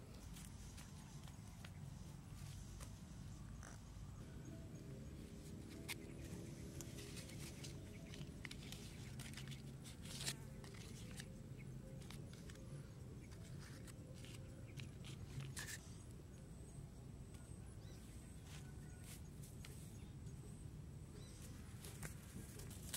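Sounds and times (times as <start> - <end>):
low steady hum: 0.0 - 22.9
food being handled: 5.5 - 15.9.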